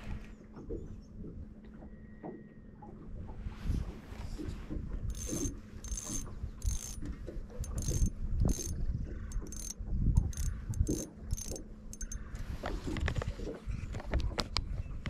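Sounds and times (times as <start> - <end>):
fishing reel ratcheting: 5.1 - 12.4.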